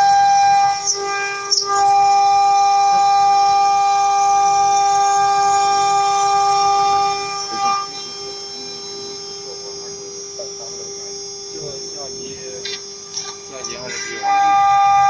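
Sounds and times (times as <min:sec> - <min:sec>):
router spindle whining: 0:00.0 - 0:15.0.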